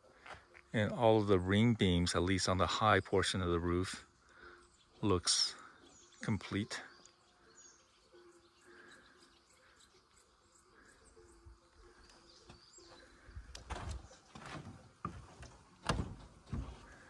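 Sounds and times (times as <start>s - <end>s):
faint birds chirping: 0.0s - 17.0s
knocks and rustles: 13.6s - 17.0s.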